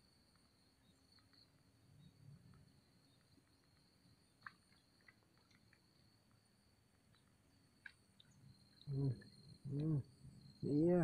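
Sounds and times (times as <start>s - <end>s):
faint insect drone: 0.0s - 11.0s.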